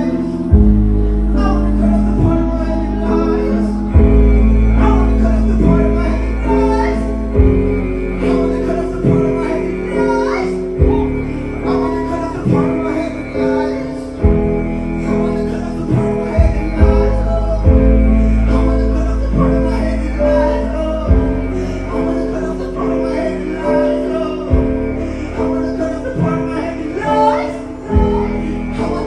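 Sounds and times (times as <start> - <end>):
heavy beats: 0.0 - 23.0, 23.6 - 29.0
deep bass: 0.0 - 29.0
keyboard chords: 0.0 - 29.0
man singing into microphone: 0.0 - 29.0.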